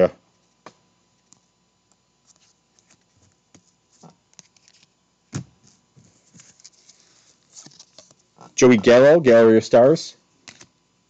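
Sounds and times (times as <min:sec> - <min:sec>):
trading cards scraping and clicking: 0:02.2 - 0:05.0, 0:05.6 - 0:08.6, 0:10.4 - 0:10.8.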